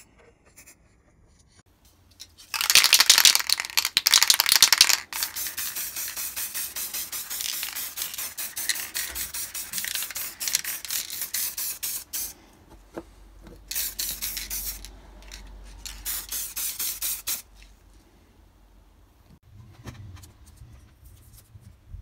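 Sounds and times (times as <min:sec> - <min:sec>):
spray paint can hissing: 0:02.5 - 0:12.3, 0:13.7 - 0:17.5.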